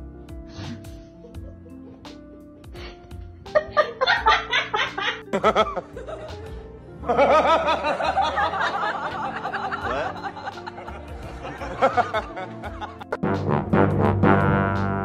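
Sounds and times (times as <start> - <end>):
background music: 0.0 - 15.0
people laughing: 1.2 - 2.1, 3.5 - 13.2.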